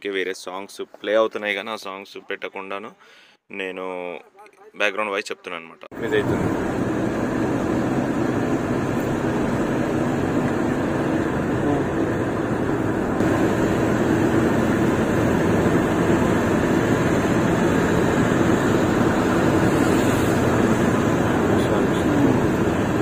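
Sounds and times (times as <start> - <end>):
road and engine noise in car: 6.0 - 23.0.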